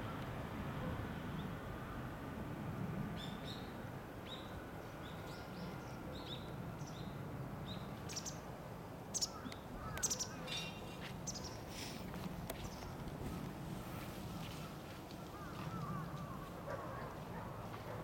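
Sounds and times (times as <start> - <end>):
faint low outdoor hum: 0.0 - 18.0
small birds chirping: 9.1 - 13.0
sharp bird clicks: 9.2 - 10.7.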